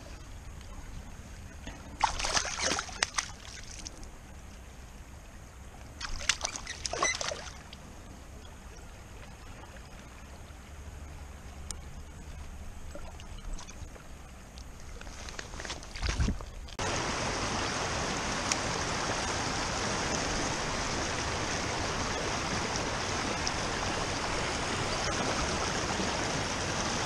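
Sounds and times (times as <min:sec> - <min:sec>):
fish splashing in water: 0:02.0 - 0:03.9, 0:06.0 - 0:07.7
river rushing: 0:16.8 - 0:27.0.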